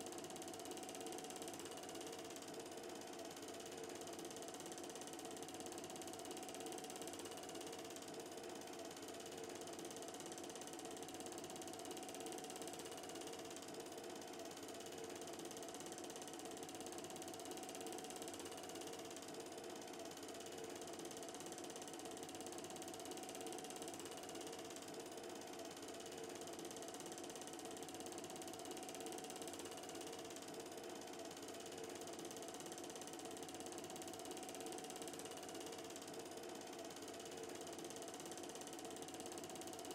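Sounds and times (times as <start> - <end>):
film projector running: 0.0 - 39.9.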